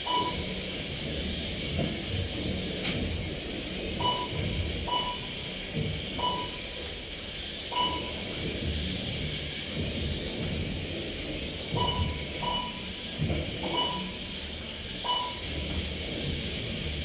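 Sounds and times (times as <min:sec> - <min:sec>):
short electronic beeps: 0:00.0 - 0:00.5, 0:04.0 - 0:05.4, 0:06.2 - 0:06.7, 0:07.7 - 0:08.2, 0:11.8 - 0:12.9, 0:15.0 - 0:15.5.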